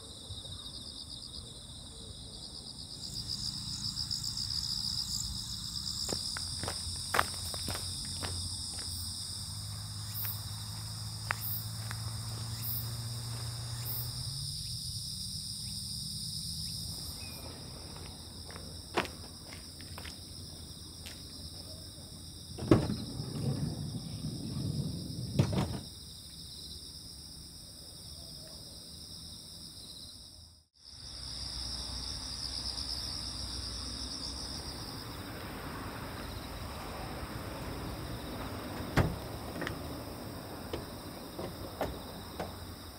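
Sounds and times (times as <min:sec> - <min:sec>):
insects singing: 0:00.5 - 0:23.2.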